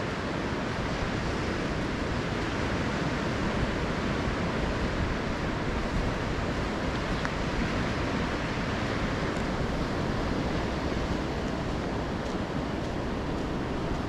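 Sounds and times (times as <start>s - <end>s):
surf breaking on beach: 0.0s - 14.0s.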